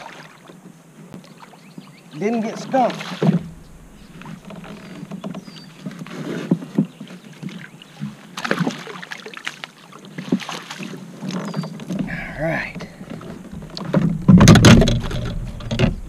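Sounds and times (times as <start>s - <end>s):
tackle knocking against hull: 3.0s - 7.0s, 12.8s - 16.0s.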